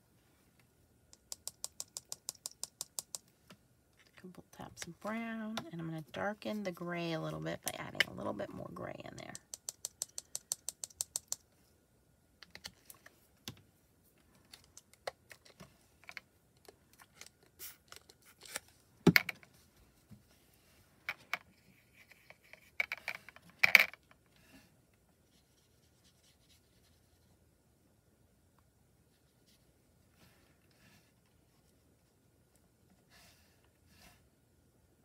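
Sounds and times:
plastic pots clicking and knocking: 0:01.2 - 0:03.6.

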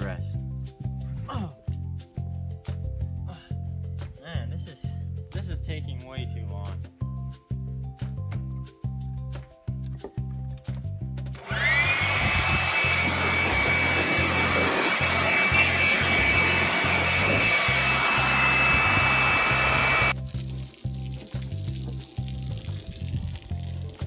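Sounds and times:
leaf blower whining: 0:11.4 - 0:20.2.

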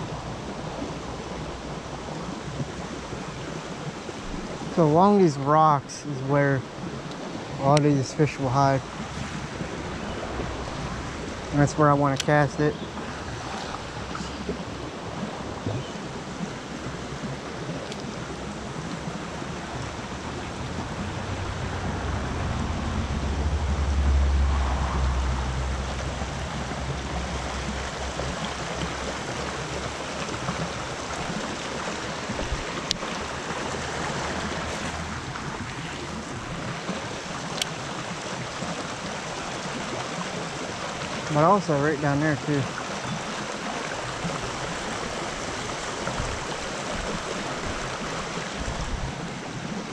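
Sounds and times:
creek water rushing over rocks: 0:00.0 - 0:49.9
low rumble: 0:19.9 - 0:28.4.

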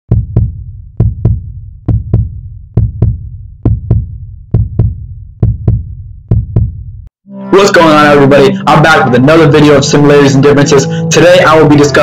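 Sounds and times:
heartbeat thumps: 0:00.1 - 0:07.1.

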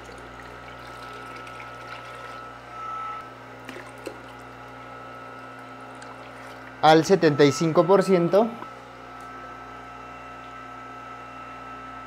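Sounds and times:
water pouring and splashing: 0:00.0 - 0:02.4
water pump electric hum: 0:00.0 - 0:12.0.

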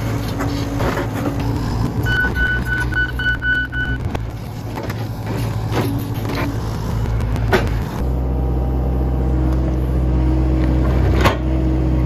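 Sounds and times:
excavator diesel engine running: 0:00.0 - 0:12.0
travel alarm beeping: 0:02.0 - 0:04.0.

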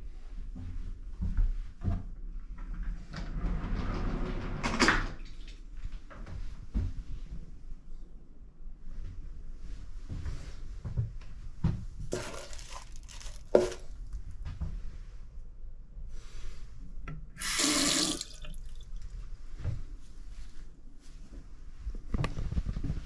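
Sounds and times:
handling rustles: 0:12.0 - 0:14.3
tap water running into basin: 0:17.4 - 0:19.0.

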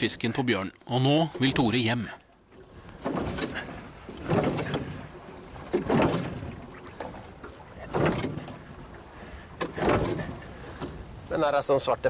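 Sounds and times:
outboard motor pull-start: 0:02.9 - 0:08.8, 0:09.6 - 0:11.0.

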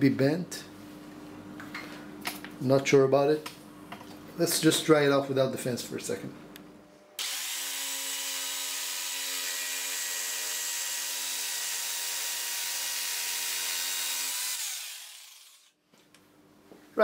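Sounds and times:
jigsaw winding down: 0:07.2 - 0:15.7
jigsaw cutting wood: 0:07.2 - 0:15.8.

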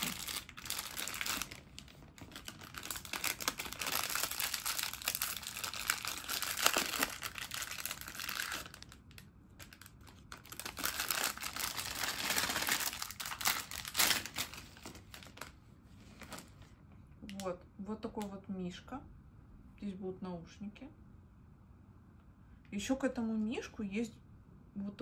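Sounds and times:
plastic bag crinkling: 0:00.0 - 0:16.7.

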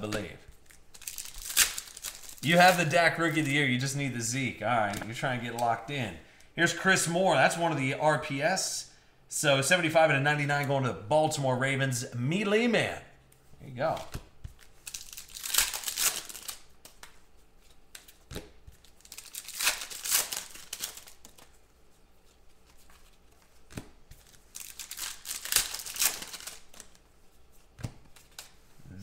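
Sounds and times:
cards being handled: 0:00.0 - 0:06.0, 0:13.2 - 0:29.0
foil wrappers tearing and crinkling: 0:00.1 - 0:03.6, 0:14.6 - 0:16.9, 0:18.8 - 0:21.6, 0:22.9 - 0:27.0.

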